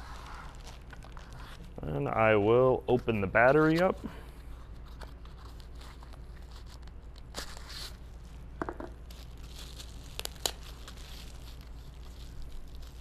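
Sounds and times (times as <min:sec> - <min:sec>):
cardboard packaging rustling: 0:00.0 - 0:01.8, 0:08.8 - 0:13.0
taps on packaging: 0:08.6 - 0:09.0.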